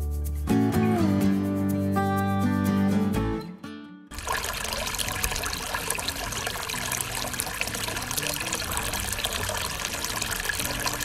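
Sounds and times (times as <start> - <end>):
fountain water splashing into bowls: 4.1 - 11.0.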